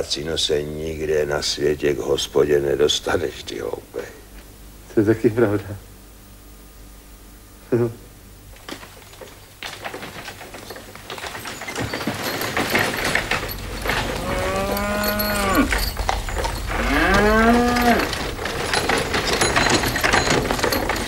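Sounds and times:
horses' hooves clattering: 8.5 - 21.0
wooden wagon rattling: 8.6 - 21.0
cow mooing: 14.1 - 15.8, 16.7 - 18.1.

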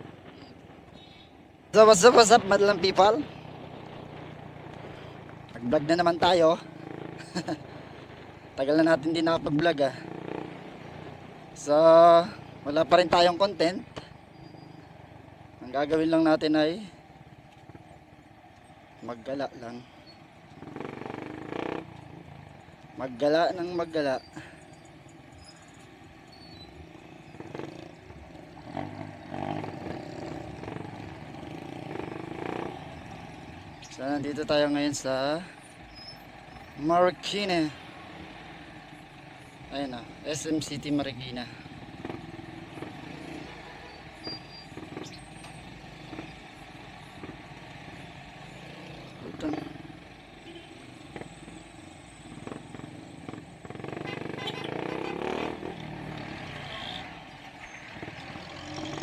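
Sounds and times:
road and traffic noise: 0.0 - 59.0
vehicle engine revving: 9.9 - 11.3, 20.5 - 22.2, 26.8 - 33.8, 41.6 - 59.0.

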